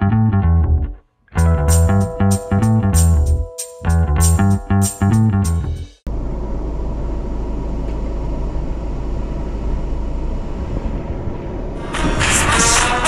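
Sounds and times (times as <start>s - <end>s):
music: 0.0s - 6.0s, 11.8s - 13.0s
vehicle low rumble: 2.7s - 12.4s.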